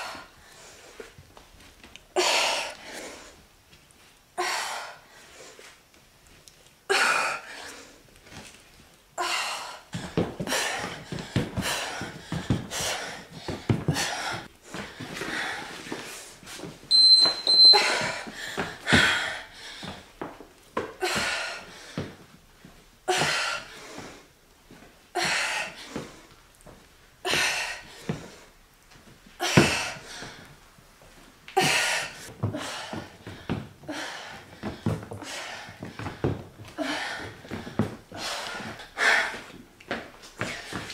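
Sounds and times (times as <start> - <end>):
woman breathing hard: 0.0 - 1.2, 2.1 - 3.5, 4.4 - 5.8, 6.9 - 8.0, 9.2 - 16.6, 17.7 - 22.3, 23.0 - 24.4, 25.1 - 26.4, 27.2 - 28.6, 29.4 - 30.6, 31.6 - 39.6
timer high double beep: 16.9 - 18.1.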